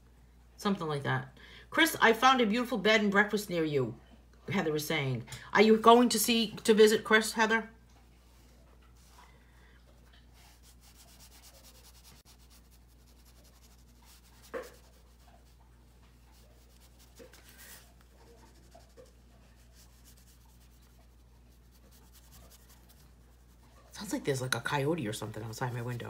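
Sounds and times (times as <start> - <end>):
marker scratching on paper: 10.3 - 15.6, 16.2 - 24.1.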